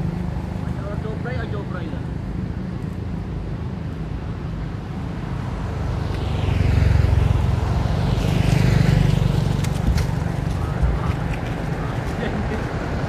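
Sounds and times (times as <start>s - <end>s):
steady low traffic rumble: 0.0s - 13.0s
vehicles passing close by: 0.0s - 13.0s.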